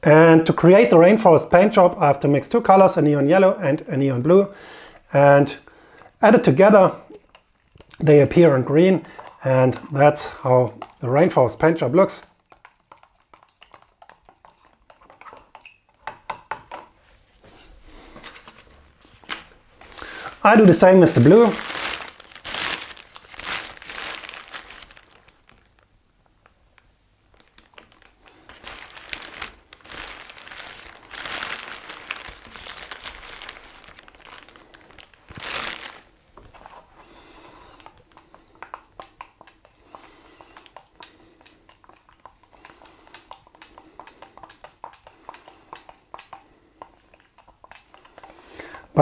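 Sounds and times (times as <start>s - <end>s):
stick stirring paint in cup: 6.0s - 17.0s, 36.0s - 49.0s
paper towel crinkling: 18.0s - 25.9s, 27.3s - 37.9s.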